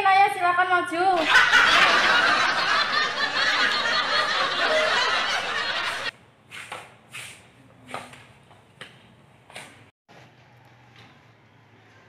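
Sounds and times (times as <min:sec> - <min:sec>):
crowd laughing: 0:01.2 - 0:06.1.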